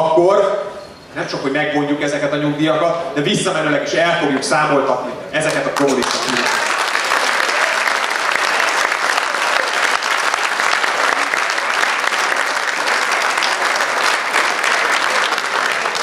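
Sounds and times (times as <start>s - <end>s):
audience applauding: 5.5s - 16.0s.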